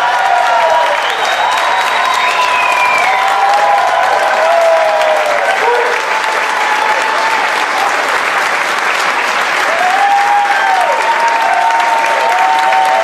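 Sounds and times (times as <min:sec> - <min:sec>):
crowd calling out: 0:00.0 - 0:08.3
audience applauding: 0:00.0 - 0:13.0.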